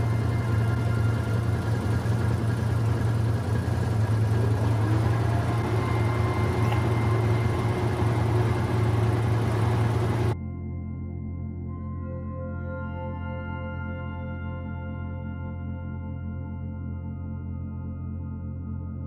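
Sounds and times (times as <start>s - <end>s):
vehicle engine idling: 0.0s - 10.4s.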